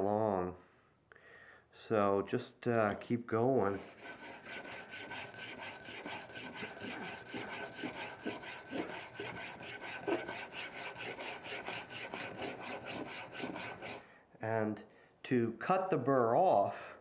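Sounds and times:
plane blade scraping on whetstone: 0:03.7 - 0:14.0.

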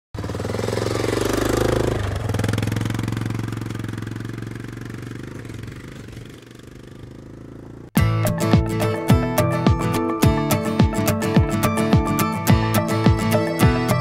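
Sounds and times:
quad bike engine driving past: 0:00.2 - 0:08.0.

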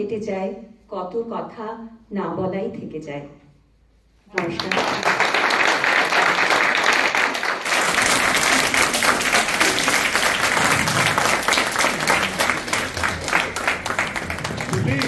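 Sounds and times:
audience applause: 0:04.4 - 0:15.0.

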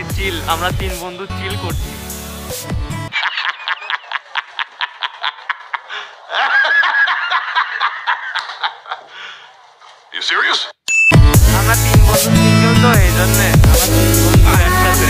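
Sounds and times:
man laughing loudly: 0:03.1 - 0:09.6.

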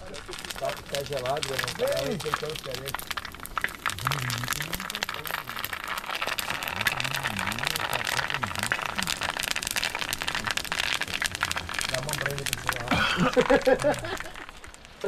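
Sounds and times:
small crackles and clicks: 0:00.0 - 0:15.0
low voices talking quietly: 0:03.9 - 0:05.6, 0:06.5 - 0:09.3.

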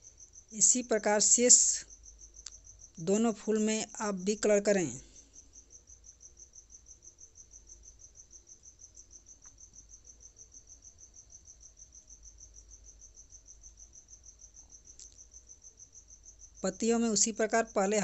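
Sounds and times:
insect trilling: 0:00.0 - 0:10.4.

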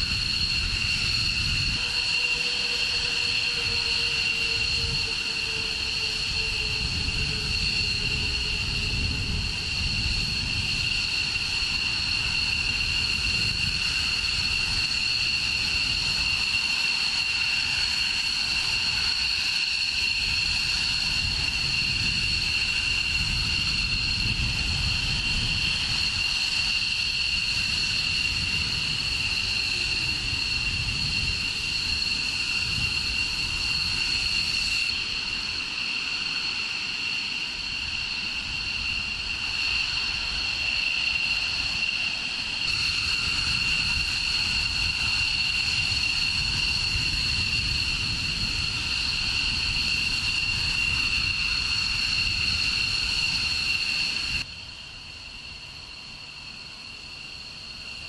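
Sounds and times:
jet engines idling: 0:00.0 - 0:58.0.

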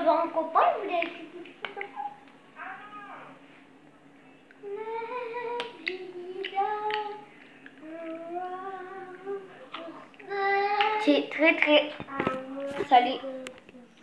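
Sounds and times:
child singing long notes: 0:07.8 - 0:11.1.

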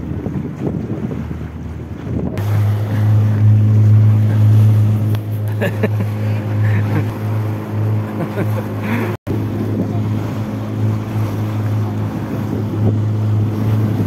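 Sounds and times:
wind on the microphone: 0:00.0 - 0:05.5, 0:09.3 - 0:14.0
boat motor humming: 0:00.0 - 0:14.0.

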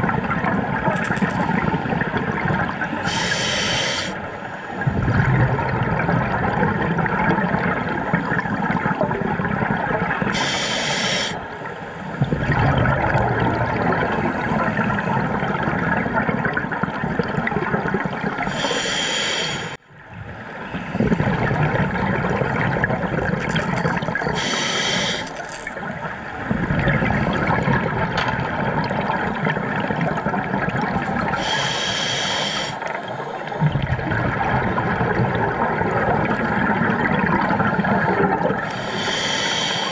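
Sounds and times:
exhaled bubbles burbling: 0:00.0 - 0:03.6, 0:04.8 - 0:10.8, 0:12.1 - 0:18.9, 0:20.0 - 0:31.7, 0:32.8 - 0:39.3
diver inhaling with whistling hiss: 0:03.1 - 0:04.2, 0:10.4 - 0:11.4, 0:18.5 - 0:19.8, 0:24.3 - 0:25.5, 0:31.3 - 0:32.8, 0:38.7 - 0:39.9.

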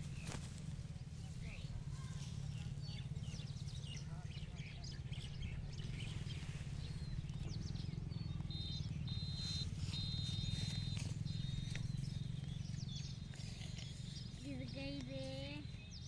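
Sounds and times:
low steady hum: 0:00.0 - 0:16.0
animal chirping and squeaking: 0:05.0 - 0:16.0.

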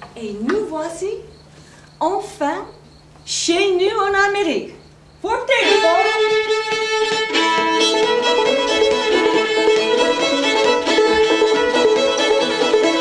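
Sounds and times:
fiddle tune on violin: 0:05.5 - 0:13.0.

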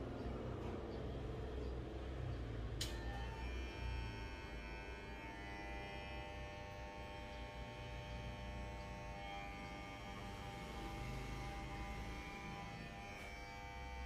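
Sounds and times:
electric hair clipper buzzing: 0:02.8 - 0:14.0.

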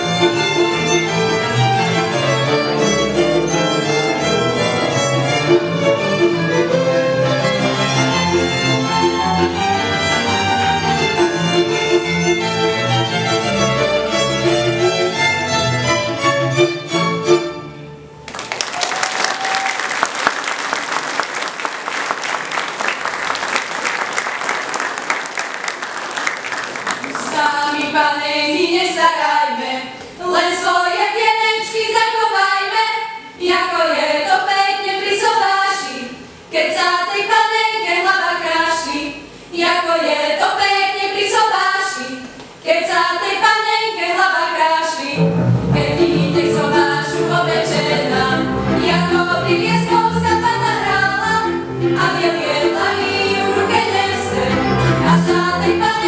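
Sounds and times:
string band with double bass: 0:00.0 - 0:18.3, 0:45.0 - 0:56.0
applause: 0:18.3 - 0:27.5
women singing unaccompanied: 0:27.2 - 0:45.2, 0:45.8 - 0:56.0.

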